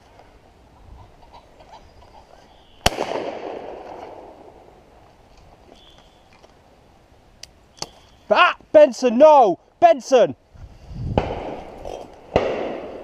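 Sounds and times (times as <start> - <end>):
shotgun shot echoing: 2.8 - 4.5, 12.3 - 13.0.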